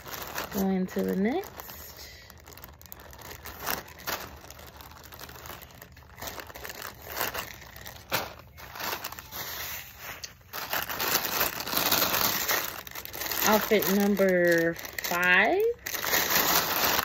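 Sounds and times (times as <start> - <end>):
plastic bags crinkling: 0.0 - 17.0.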